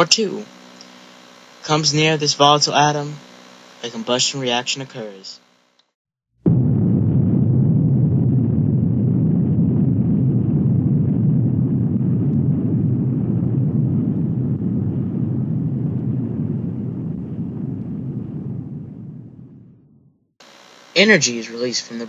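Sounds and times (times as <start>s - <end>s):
deep rumbling roar: 6.5s - 20.2s.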